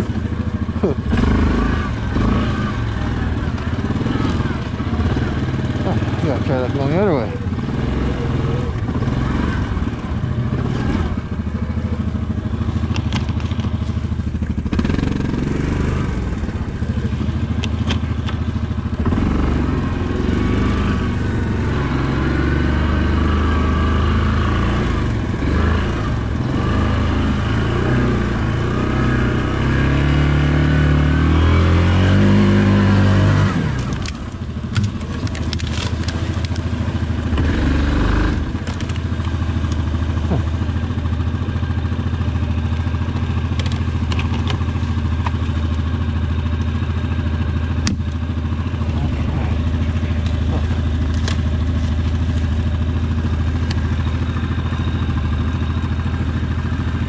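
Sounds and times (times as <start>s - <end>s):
quad bike engine revving: 0.0s - 57.0s
branches scraping against vehicle: 12.4s - 15.9s, 33.8s - 40.8s, 48.1s - 54.3s.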